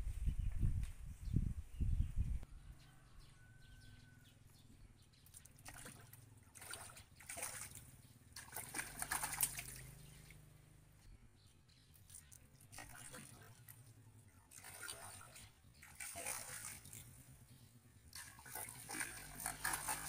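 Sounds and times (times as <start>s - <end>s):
fish thrashing and splashing: 5.3s - 10.4s, 12.0s - 13.9s, 14.5s - 17.4s, 18.1s - 20.0s.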